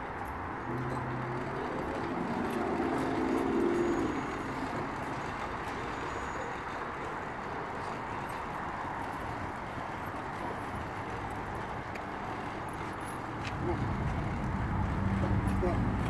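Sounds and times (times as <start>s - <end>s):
outdoor traffic noise: 0.0s - 16.0s
vehicle engine passing close: 0.6s - 7.2s.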